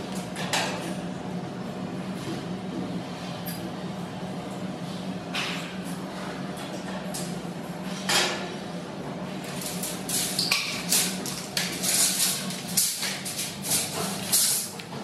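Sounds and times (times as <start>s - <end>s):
metal shelving parts clattering: 9.4s - 15.0s.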